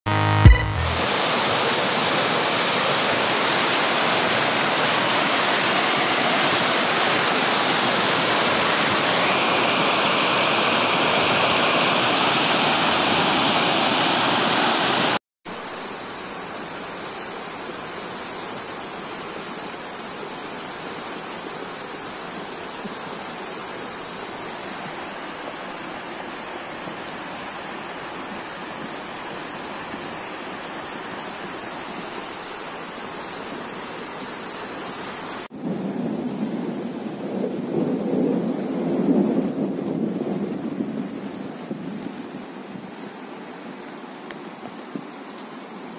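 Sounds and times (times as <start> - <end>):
flood water rushing: 0.2 - 45.9.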